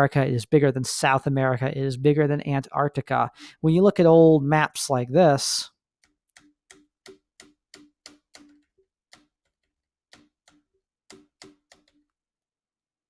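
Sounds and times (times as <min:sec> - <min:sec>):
computer mouse clicks: 0:06.0 - 0:12.1.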